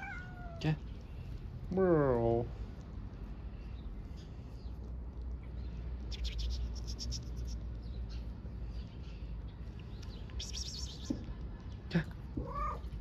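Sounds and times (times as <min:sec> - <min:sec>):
low steady rumble: 0:00.0 - 0:13.0.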